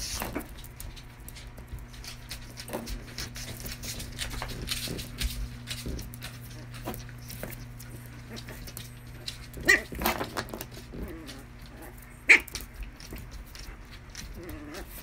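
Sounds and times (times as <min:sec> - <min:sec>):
dogs scuffling: 0:00.0 - 0:15.0
small dog yapping: 0:09.6 - 0:10.1, 0:11.0 - 0:12.6.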